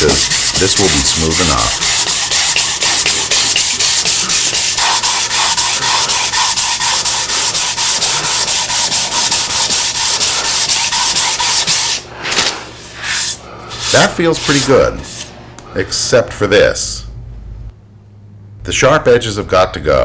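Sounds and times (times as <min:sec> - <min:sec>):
sandpaper rubbing on wood: 0:00.0 - 0:15.3.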